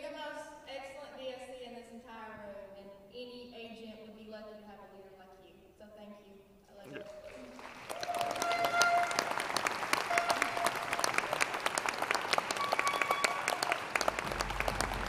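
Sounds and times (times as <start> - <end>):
audience applauding: 6.9 - 15.0
music playing: 8.0 - 15.0.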